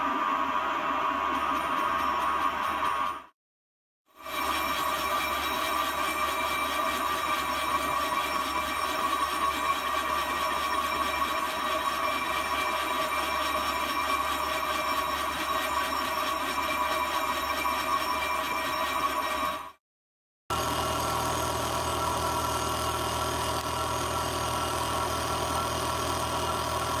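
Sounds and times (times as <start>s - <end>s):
metal lathe humming and whining: 20.5s - 27.0s.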